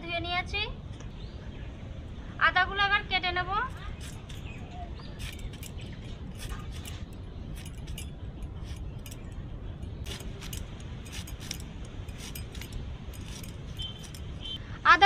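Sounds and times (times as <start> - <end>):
ginger slicing on blade: 5.2 - 9.2, 10.1 - 14.6.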